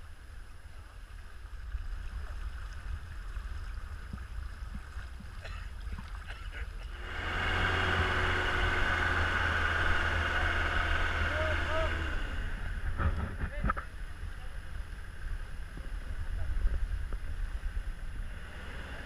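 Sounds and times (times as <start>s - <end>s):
floodwater rushing: 0.0s - 13.2s
wind rumbling on microphone: 0.0s - 19.0s.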